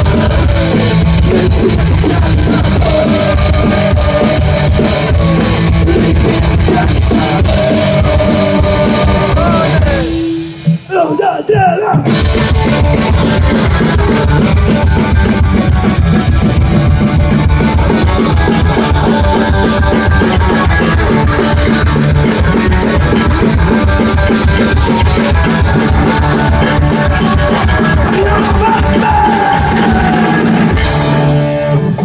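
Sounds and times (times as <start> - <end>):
fast drum beat: 0.0 - 31.4
electric guitar: 0.0 - 32.0
live rock band playing: 0.0 - 32.0.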